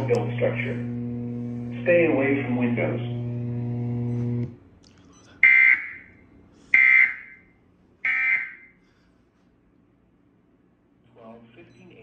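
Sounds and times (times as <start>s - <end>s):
screechy digital alert tones: 8.1s - 8.7s.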